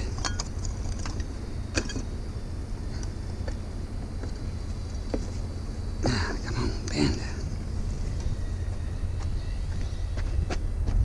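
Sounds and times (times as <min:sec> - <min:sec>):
metal frame clinking and creaking: 0:00.0 - 0:02.1
steady low rumble: 0:00.0 - 0:11.0.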